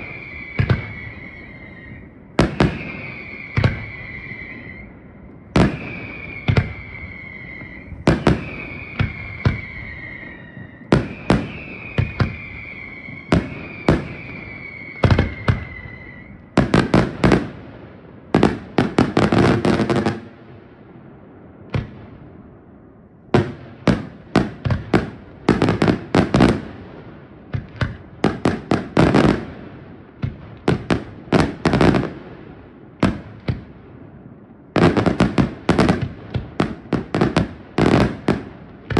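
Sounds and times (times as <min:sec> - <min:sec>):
falling firework whistles: 0:00.0 - 0:17.6, 0:30.2 - 0:32.2
fireworks bangs: 0:00.0 - 0:38.9.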